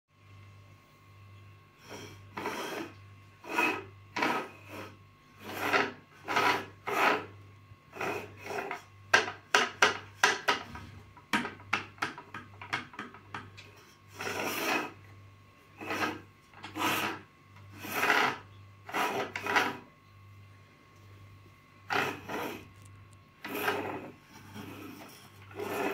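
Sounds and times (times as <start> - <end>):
toy wheels rolling on wood: 2.3 - 7.3, 14.1 - 15.0, 15.8 - 19.9, 21.9 - 25.9.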